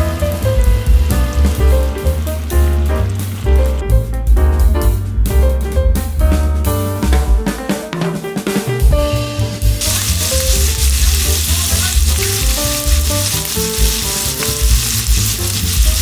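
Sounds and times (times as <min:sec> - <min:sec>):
food sizzling in a frying pan: 0:00.0 - 0:03.8, 0:09.6 - 0:16.0
background music with beat: 0:00.0 - 0:16.0.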